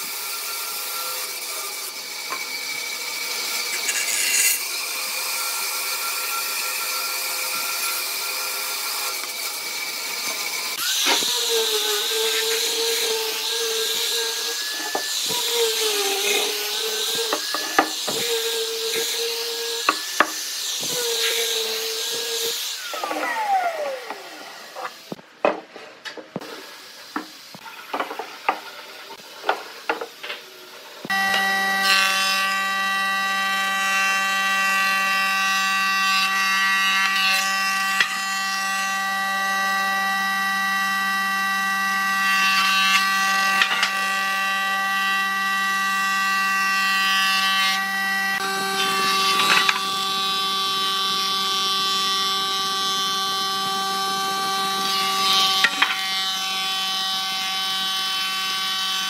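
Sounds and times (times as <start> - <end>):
bandsaw cutting wood: 0.0 - 25.2, 31.0 - 59.0
angle grinder sanding wood: 0.9 - 4.8, 7.3 - 25.2, 37.8 - 59.0.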